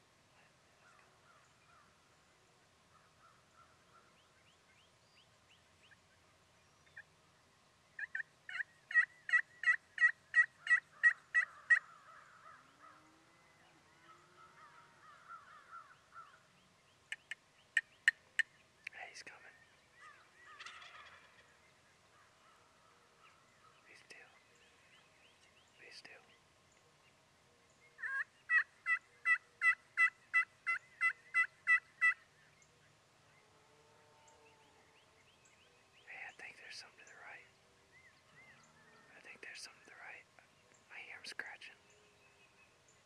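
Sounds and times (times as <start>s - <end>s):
turkey clucks: 8.0s - 11.9s, 17.1s - 18.5s, 20.6s - 21.5s, 28.0s - 32.2s
turkey gobble: 8.0s - 11.9s, 20.5s - 21.5s, 28.0s - 32.2s
turkey yelping: 8.0s - 11.9s, 20.5s - 21.4s, 28.0s - 32.2s.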